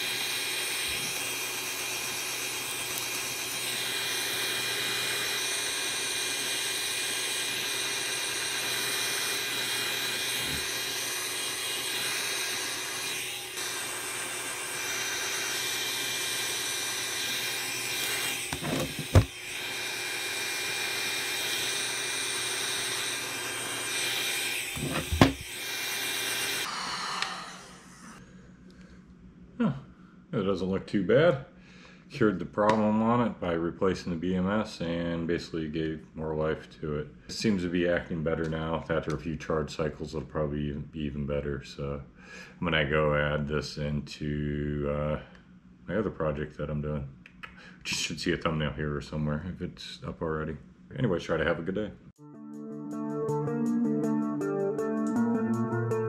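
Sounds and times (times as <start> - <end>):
heat gun fan whine: 0.0 - 28.5.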